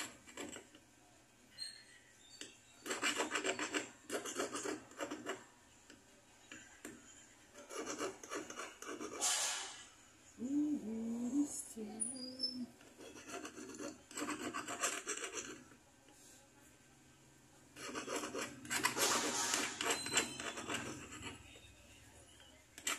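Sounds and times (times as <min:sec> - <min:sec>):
file rasping on metal: 0:02.8 - 0:05.4, 0:07.6 - 0:09.2, 0:12.9 - 0:15.6, 0:17.8 - 0:21.4.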